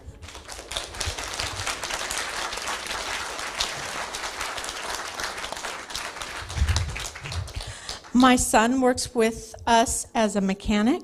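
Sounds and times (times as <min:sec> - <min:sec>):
audience applauding: 0:00.2 - 0:08.5.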